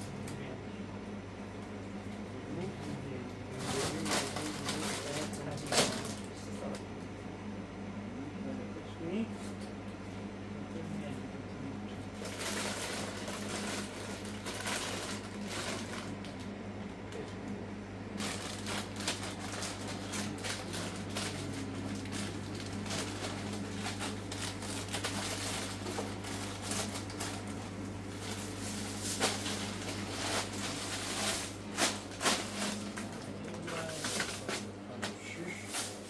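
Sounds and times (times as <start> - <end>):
steady low hum: 0.0 - 36.0
plastic bags rustling: 3.6 - 6.3, 12.2 - 16.5, 18.2 - 36.0.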